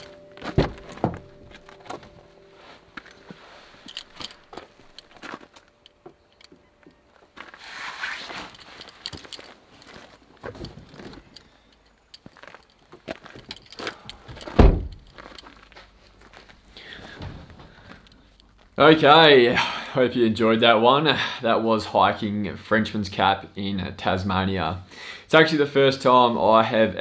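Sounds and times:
gear clicks knocks and rustles: 3.0s - 18.8s.

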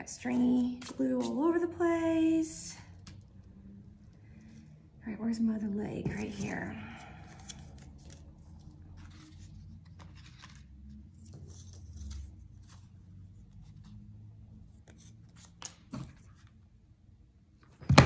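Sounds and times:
low room hum: 0.0s - 17.8s
paper rustling and crinkling: 7.3s - 14.0s.

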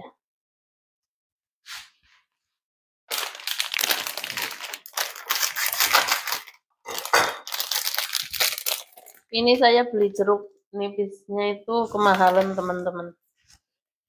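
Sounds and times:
plastic bag crinkling: 3.1s - 9.4s, 12.0s - 12.7s.

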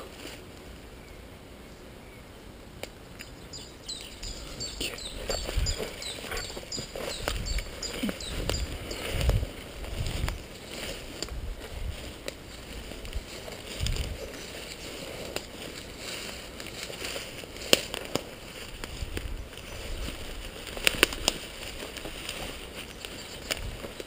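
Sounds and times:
footsteps through undergrowth: 0.0s - 0.9s, 3.5s - 24.0s
leaves and brush rustling: 0.0s - 24.0s
twigs snapping: 5.1s - 24.0s.

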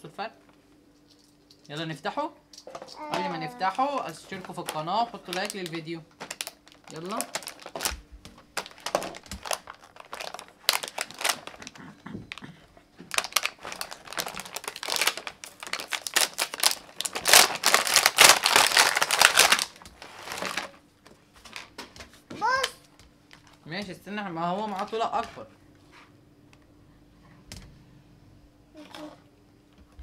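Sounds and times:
plastic packaging crinkling: 3.0s - 11.8s, 13.1s - 20.8s, 24.5s - 25.3s.

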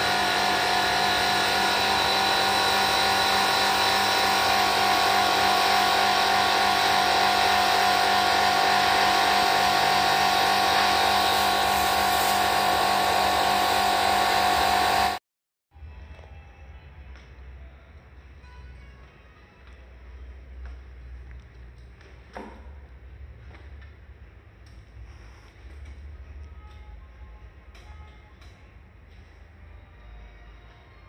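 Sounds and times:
pressure washer pump whining: 0.0s - 15.2s.

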